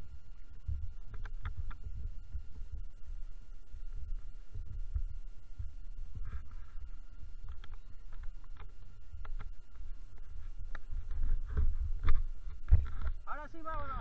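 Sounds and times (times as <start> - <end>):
faint high whine: 0.0 - 14.0
microphone buffeting rumble and thumps: 0.0 - 14.0.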